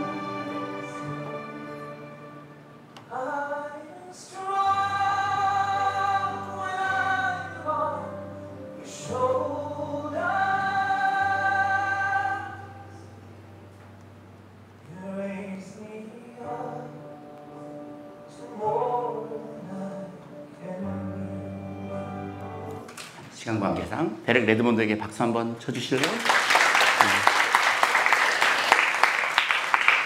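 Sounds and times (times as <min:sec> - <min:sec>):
slow singing with long notes: 0:00.0 - 0:23.9.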